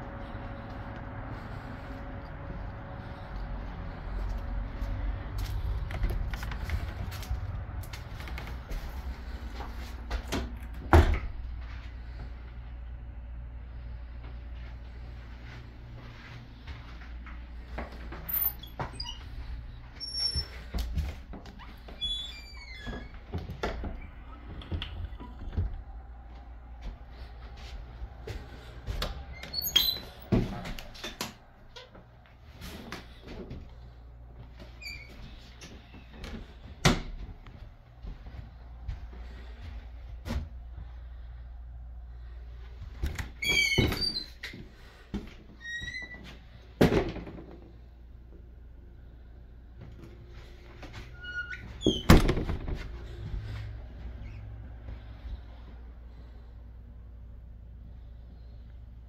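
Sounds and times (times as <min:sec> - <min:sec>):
footsteps: 0:00.0 - 0:12.8, 0:14.2 - 0:22.2, 0:22.8 - 0:41.2, 0:52.7 - 0:56.2
low rumble: 0:00.0 - 0:18.4, 0:20.6 - 0:34.8
low steady hum: 0:00.0 - 0:59.0
door squeak: 0:18.3 - 0:19.3, 0:21.6 - 0:23.2, 0:29.3 - 0:30.3, 0:43.4 - 0:44.5, 0:51.2 - 0:52.6.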